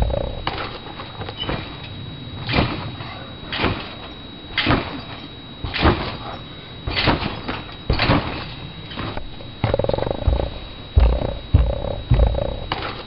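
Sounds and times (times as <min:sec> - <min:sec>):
trampoline thuds with rattle: 0:01.4 - 0:01.8, 0:03.5 - 0:13.0.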